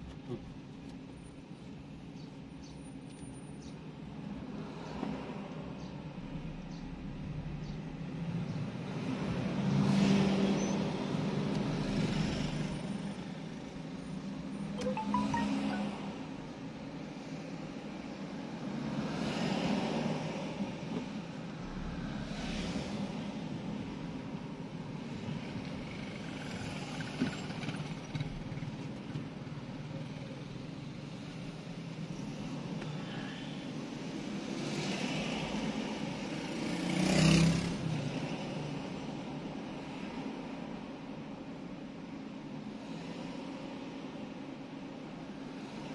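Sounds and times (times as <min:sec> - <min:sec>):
car engine and tyres humming: 0:00.0 - 0:45.9.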